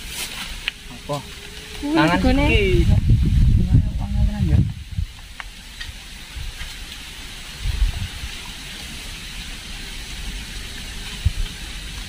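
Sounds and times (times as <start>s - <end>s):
low bumps: 0.0s - 6.8s
high hiss: 0.0s - 12.0s.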